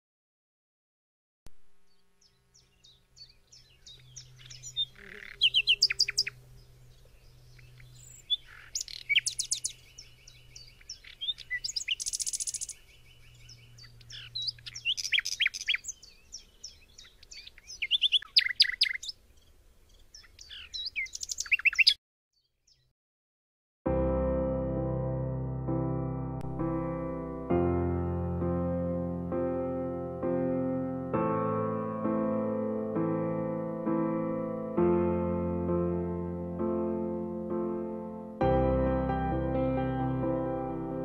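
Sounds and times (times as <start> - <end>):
nightingale singing: 1.8 - 22.9.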